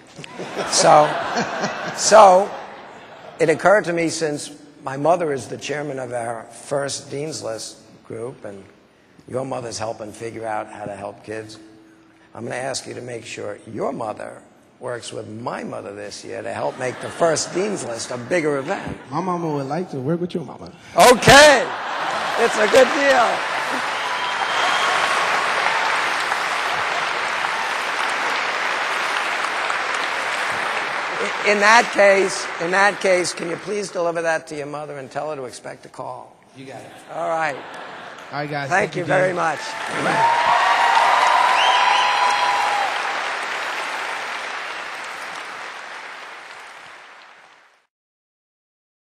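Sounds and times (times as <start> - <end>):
audience applauding: 0.0 - 3.1, 21.0 - 34.5, 37.3 - 47.9.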